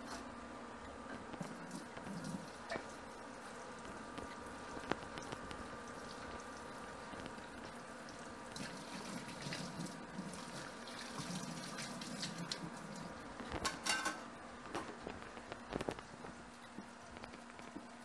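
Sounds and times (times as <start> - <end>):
wire rack clinking against sink: 13.6 - 14.2.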